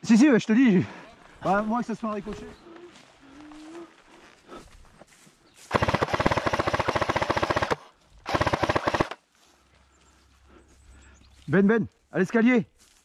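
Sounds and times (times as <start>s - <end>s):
airsoft rifle firing bursts: 5.7s - 9.2s.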